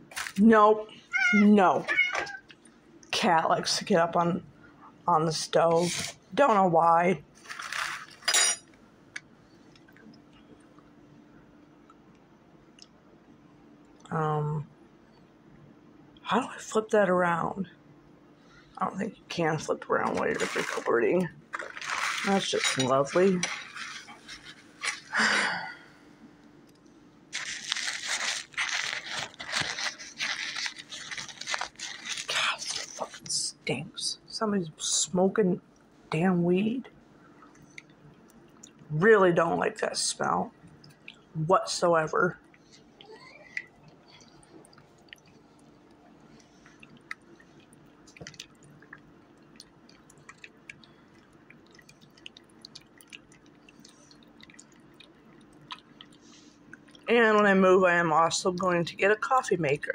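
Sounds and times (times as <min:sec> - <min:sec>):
crackly rustling and crinkling: 0:00.0 - 0:04.0, 0:07.2 - 0:10.9, 0:19.6 - 0:25.3, 0:26.4 - 0:33.4, 0:42.2 - 0:57.5
low steady hum: 0:00.0 - 0:59.9.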